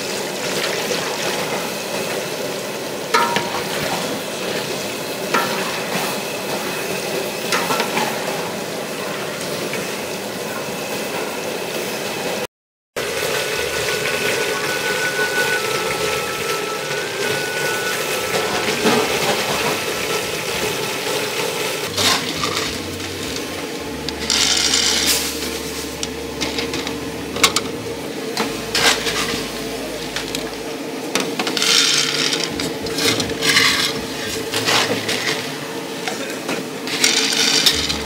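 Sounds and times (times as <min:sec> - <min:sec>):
steady hum: 0:13.0 - 0:38.0.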